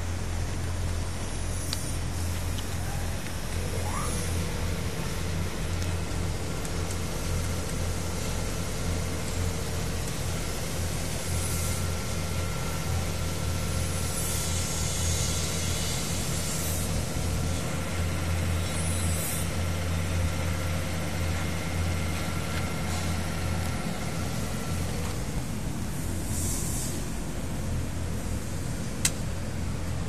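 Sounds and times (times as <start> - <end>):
low mechanical hum: 0.0 - 30.0
brief hisses: 26.2 - 27.1.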